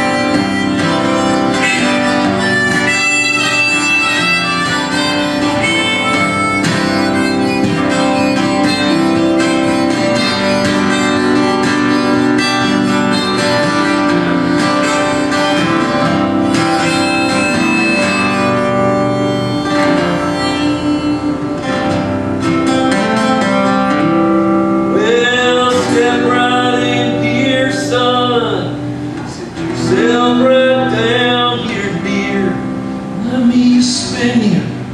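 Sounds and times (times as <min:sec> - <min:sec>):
harmonica solo: 0:00.0 - 0:33.2
acoustic guitar strumming: 0:00.0 - 0:34.9
man singing: 0:20.4 - 0:21.9, 0:24.9 - 0:34.8.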